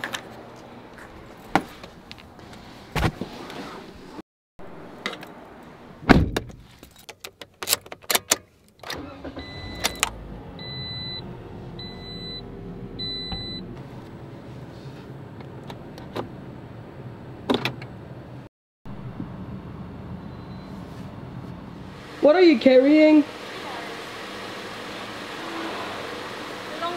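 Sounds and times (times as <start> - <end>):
car door shutting: 6.0 - 6.6.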